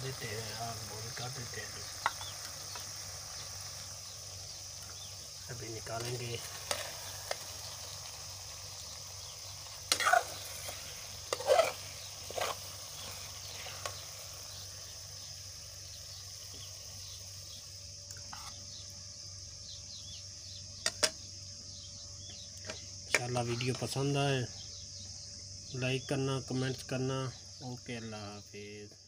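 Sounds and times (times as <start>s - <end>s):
steady high hiss: 0.0s - 29.0s
metal spoon scraping a pan: 6.0s - 7.4s, 9.9s - 14.0s, 18.2s - 18.6s.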